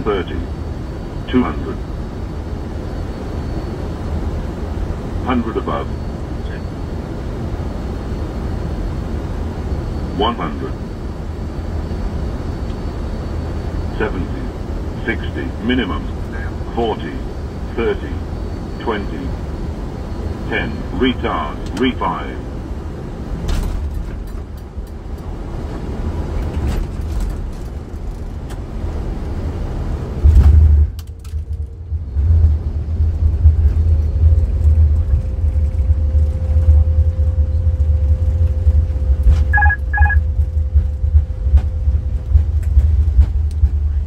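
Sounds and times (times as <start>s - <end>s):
deep steady rumble: 0.0s - 44.0s
faint steady tone: 38.9s - 40.4s
short beeps: 39.5s - 40.3s.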